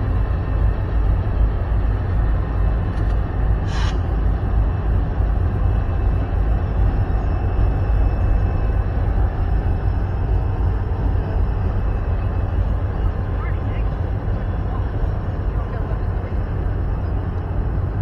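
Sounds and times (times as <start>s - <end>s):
distant freight train rumble: 0.0s - 18.0s
short hiss: 3.6s - 4.0s.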